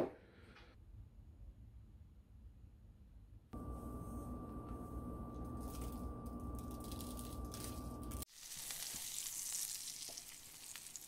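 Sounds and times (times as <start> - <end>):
steady low hum: 1.8 - 8.3
thin high whine: 3.6 - 8.2.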